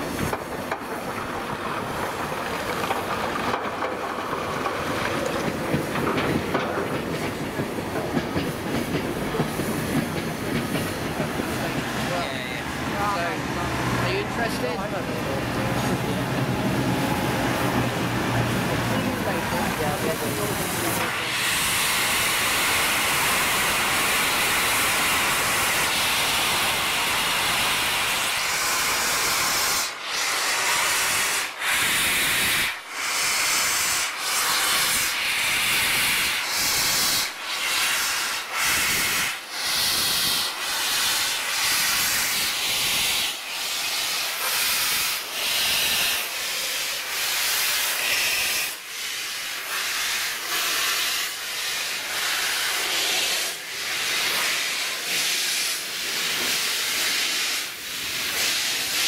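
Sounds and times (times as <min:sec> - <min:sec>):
steam locomotive chuffing: 0:00.0 - 0:59.0
steam locomotive hissing steam: 0:00.0 - 0:59.0.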